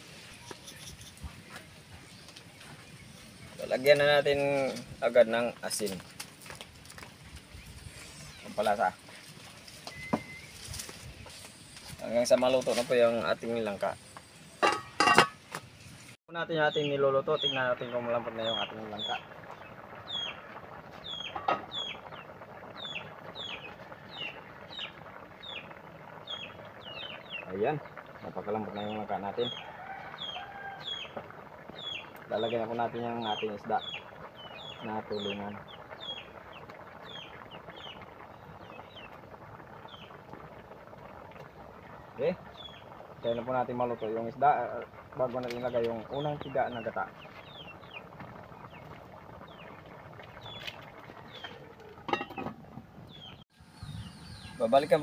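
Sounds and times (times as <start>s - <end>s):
stew boiling and bubbling: 0.0s - 55.0s
bird chirping: 9.8s - 10.6s, 51.3s - 55.0s.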